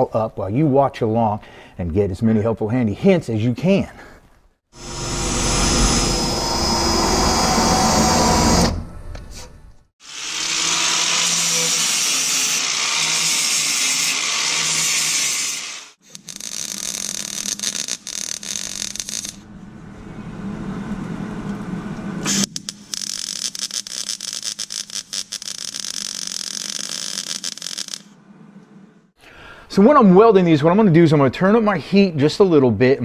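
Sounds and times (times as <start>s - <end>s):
power drill drilling metal: 10.0s - 16.8s
crackling welding: 11.7s - 19.4s, 22.3s - 28.2s.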